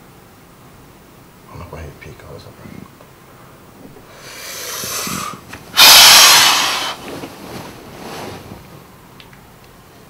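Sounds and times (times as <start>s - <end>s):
man breathing heavily: 4.0s - 5.5s.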